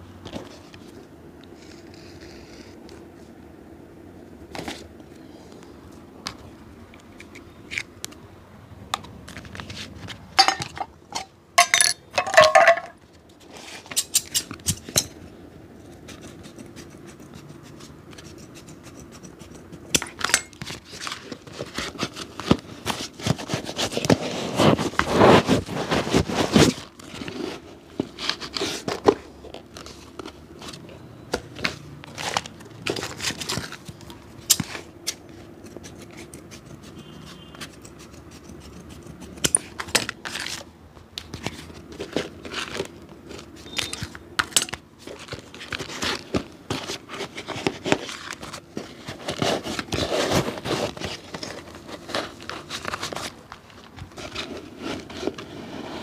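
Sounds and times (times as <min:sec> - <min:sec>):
tools clicking and tapping: 0:10.4 - 0:13.0, 0:18.1 - 0:20.8, 0:33.5 - 0:40.6, 0:43.7 - 0:44.8.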